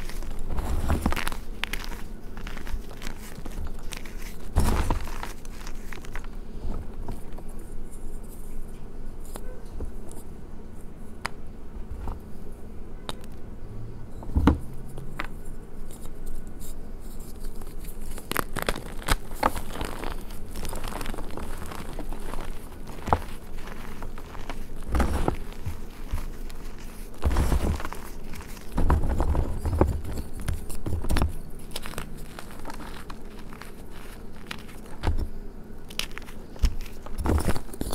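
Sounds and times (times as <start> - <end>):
chalk crunching in hands: 0.0 - 6.4, 15.9 - 30.9, 31.6 - 35.1.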